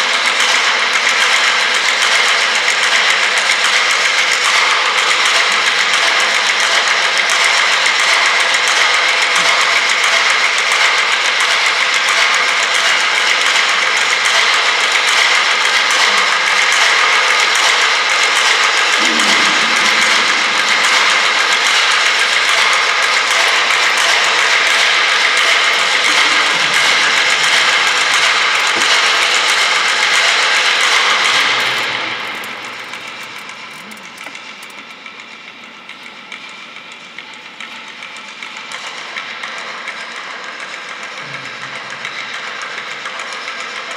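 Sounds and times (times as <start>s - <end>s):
percussion rattling on tabletops: 0.0s - 43.9s
steady ringing tones: 13.9s - 40.6s.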